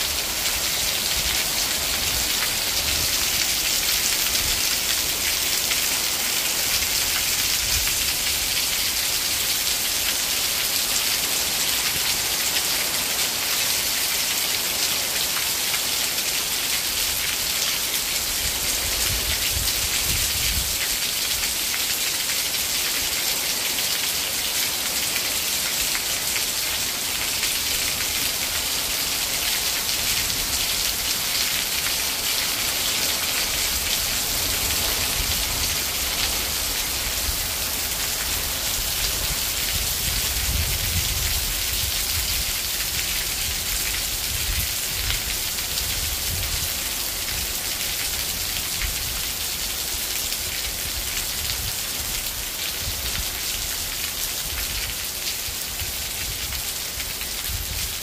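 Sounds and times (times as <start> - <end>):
heavy rain: 0.0 - 58.0.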